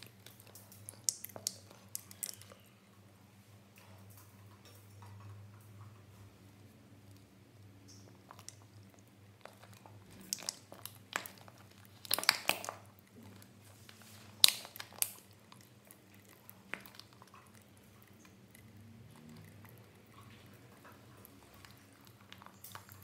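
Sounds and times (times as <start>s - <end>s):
sharp clicks and crackles: 9.4s - 13.5s.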